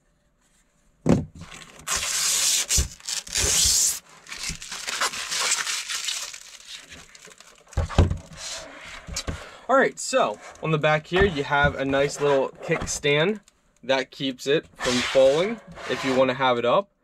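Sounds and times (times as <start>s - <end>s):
plastic film crinkling: 1.4s - 8.6s.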